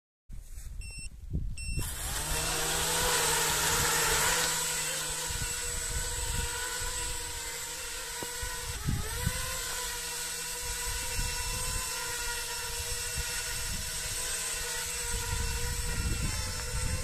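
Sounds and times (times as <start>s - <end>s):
short high beeps: 0.8s - 1.9s
drone motors whining: 1.6s - 17.0s
wind buffeting microphone: 8.3s - 9.7s, 14.9s - 17.0s.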